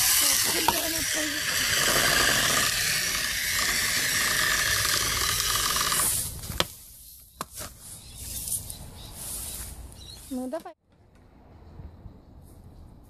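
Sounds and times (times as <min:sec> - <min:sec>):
toy truck motor whining: 0:00.0 - 0:06.3.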